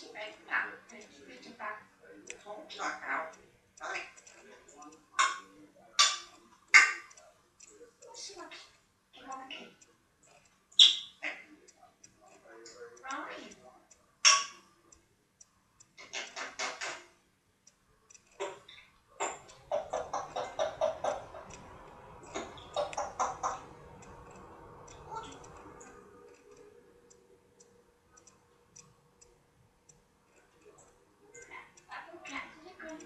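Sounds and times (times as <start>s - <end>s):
parrot chattering: 0.1s - 7.2s, 10.8s - 11.6s, 14.2s - 14.6s, 16.0s - 17.1s, 18.4s - 26.5s
soft clicks: 11.6s - 33.0s.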